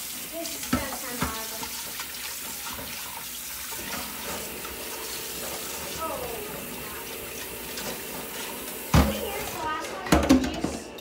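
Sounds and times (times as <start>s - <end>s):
kitchen faucet running: 0.0s - 11.0s
pot being rinsed: 0.0s - 11.0s.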